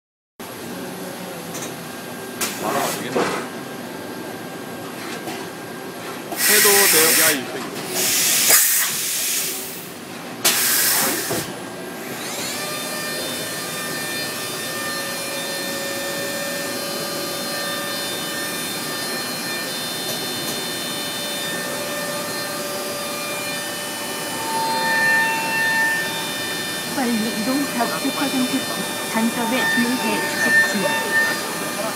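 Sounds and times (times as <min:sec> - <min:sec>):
machine whine and hum: 0:00.4 - 0:31.9
hiss bursts: 0:06.4 - 0:07.4, 0:08.0 - 0:09.9, 0:10.5 - 0:11.4.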